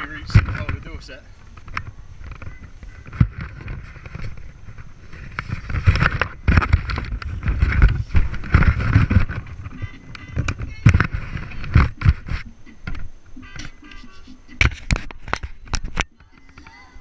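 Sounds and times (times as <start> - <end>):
wind buffeting microphone: 0.0 - 13.2
clothing rustling: 1.6 - 10.0
camera knocks: 5.3 - 13.7.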